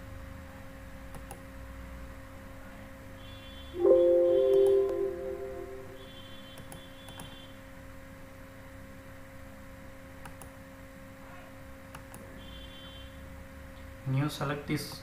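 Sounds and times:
computer mouse clicks: 0:01.1 - 0:01.4, 0:10.2 - 0:10.5, 0:11.9 - 0:12.3.

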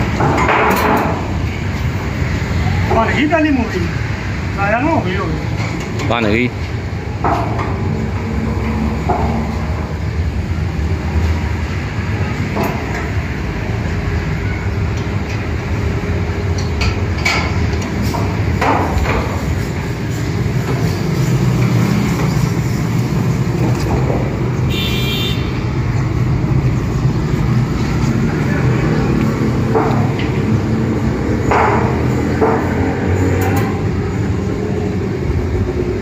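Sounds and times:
steady low rumble: 0:25.6 - 0:36.0.

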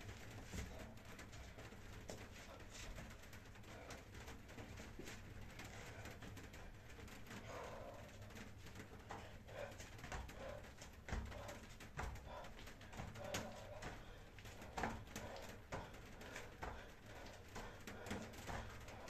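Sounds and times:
feet shuffling: 0:00.0 - 0:19.0
person breathing: 0:00.5 - 0:19.0
bare feet thudding on mat: 0:09.2 - 0:19.0.

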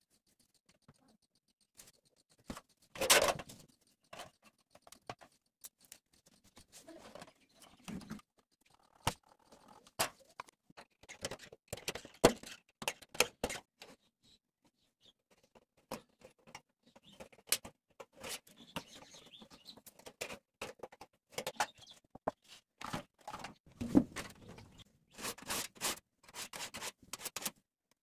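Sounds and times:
pen scraping on tin sheet: 0:00.2 - 0:10.5, 0:25.1 - 0:27.6.

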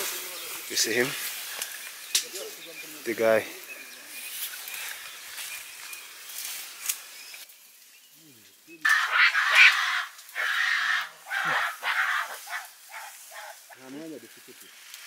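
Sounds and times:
undergrowth rustling and tearing: 0:00.0 - 0:08.0, 0:10.2 - 0:15.0.

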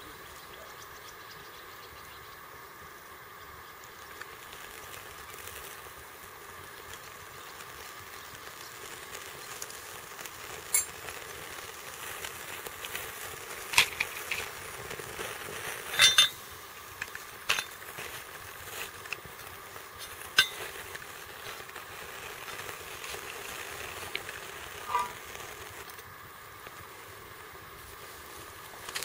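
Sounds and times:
faint hiss: 0:00.0 - 0:29.0
matches scraping on matchbox: 0:10.5 - 0:26.0.

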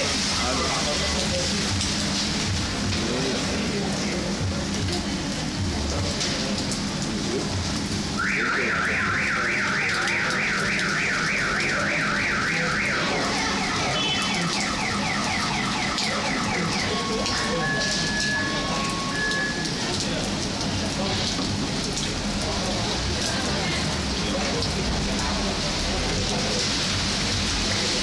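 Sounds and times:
heavy rain: 0:00.0 - 0:28.0
car alarm whooping siren: 0:08.2 - 0:19.9.

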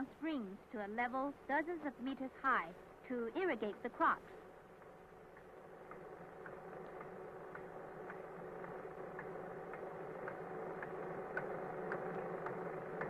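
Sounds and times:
water pump machinery humming: 0:02.9 - 0:13.0.

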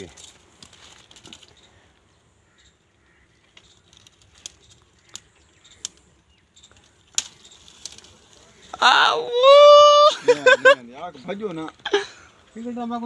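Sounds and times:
dry leaves and twigs crackling: 0:00.0 - 0:13.0
sharp cracks: 0:06.8 - 0:08.3.

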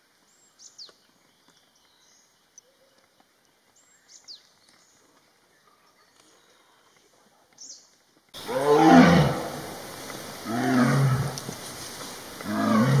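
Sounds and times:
faint bush ambience: 0:00.0 - 0:13.0
big cat roaring: 0:08.4 - 0:09.8, 0:10.4 - 0:11.6, 0:12.4 - 0:13.0.

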